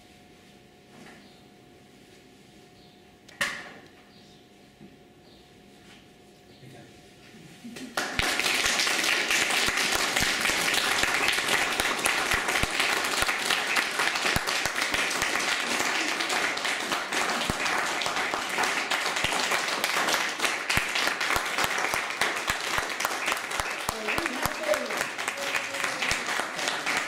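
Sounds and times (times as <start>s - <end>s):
audience applause: 8.0s - 27.0s.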